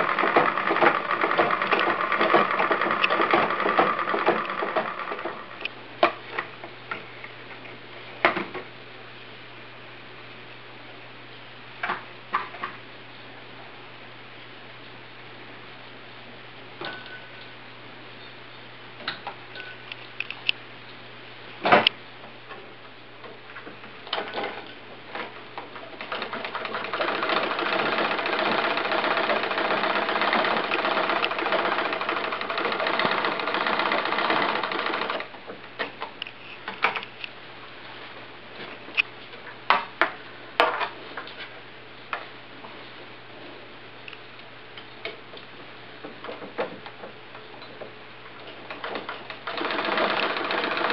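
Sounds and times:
sewing machine clattering: 0.0 - 5.7, 24.1 - 35.3, 48.7 - 50.9
mechanism clicks and knocks: 0.0 - 6.5, 23.3 - 37.3.

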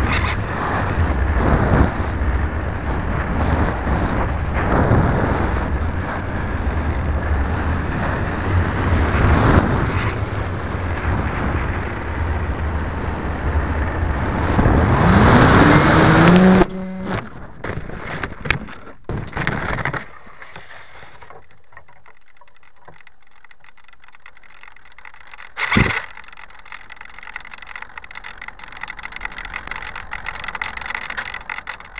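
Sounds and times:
wind rushing over camera: 0.0 - 31.9
electric motor whining: 14.4 - 17.5
branches cracking and scraping: 16.2 - 31.9.

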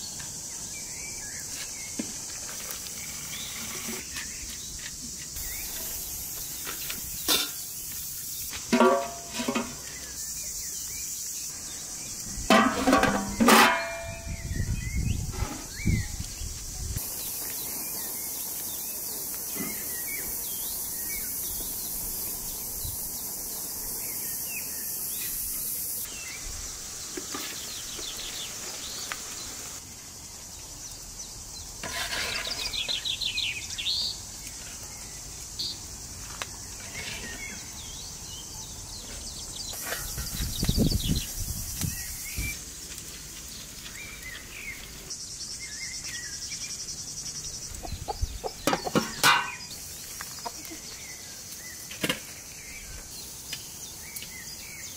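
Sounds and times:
steady high hiss: 0.0 - 54.9
birds chirping and calling: 36.7 - 42.6, 43.8 - 54.9
clattering handling noise: 48.7 - 49.7.

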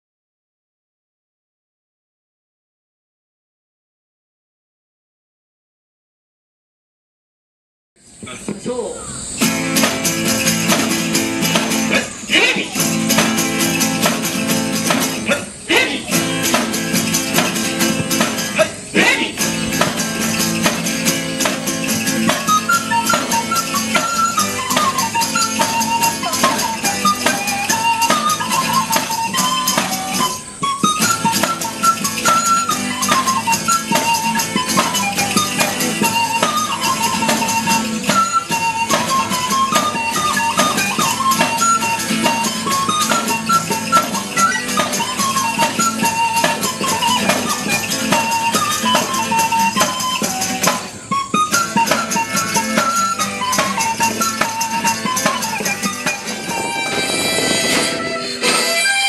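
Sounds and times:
strummed acoustic guitar: 9.3 - 59.0
jingling rattling beat: 9.4 - 59.0
end-blown pipe melody: 22.1 - 59.0.

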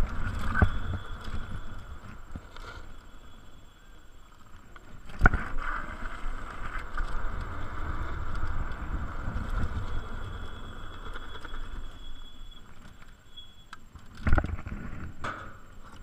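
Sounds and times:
wind rumble on microphone: 0.0 - 2.6, 4.9 - 12.9
electric scooter motor and tyres: 0.0 - 16.0.

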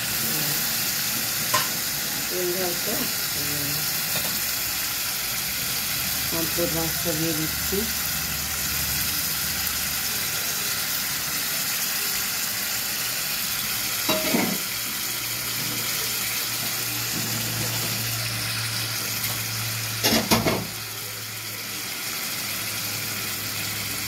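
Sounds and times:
curry simmering and sizzling: 0.0 - 24.0.

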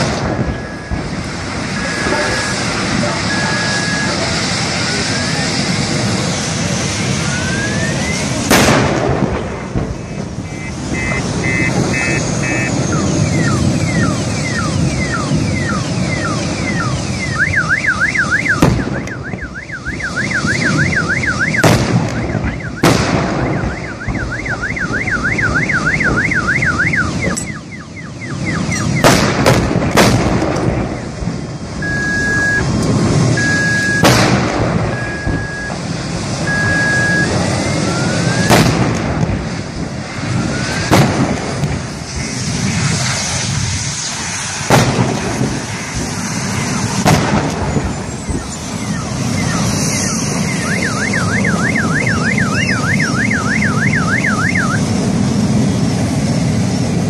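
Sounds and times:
gas cylinders exploding: 0.0 - 4.8, 6.2 - 13.7, 20.2 - 24.4, 28.6 - 37.4, 38.1 - 48.4
car alarm warbling: 0.4 - 4.3, 10.0 - 29.1, 31.8 - 34.1, 34.9 - 35.8, 36.4 - 38.5, 47.8 - 54.9
short even beeps: 3.2 - 4.2, 10.1 - 21.6, 31.8 - 32.7, 33.4 - 34.1, 34.9 - 35.8, 36.5 - 37.3.

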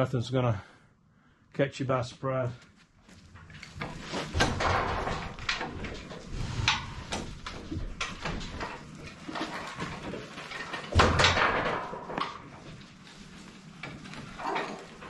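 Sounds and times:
trailer wheels on concrete: 3.2 - 15.0
metal frame rattling: 3.3 - 15.0.

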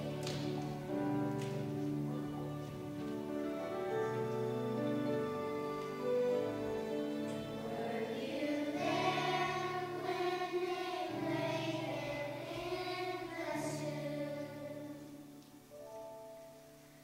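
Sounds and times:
children's choir singing: 0.0 - 15.5
instrumental accompaniment: 0.0 - 17.0.

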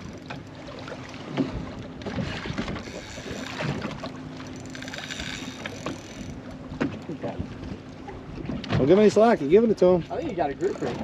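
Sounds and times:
water noise: 0.0 - 11.0
wind: 0.0 - 11.0
fishing reel buzzing: 2.8 - 3.7, 4.5 - 6.4, 10.3 - 11.0.

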